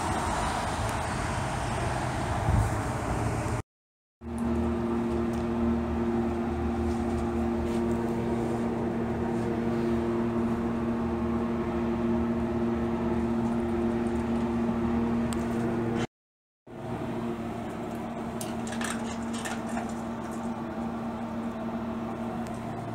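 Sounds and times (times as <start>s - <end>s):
mechanical hum with low rumble: 4.2s - 16.1s, 16.7s - 22.9s.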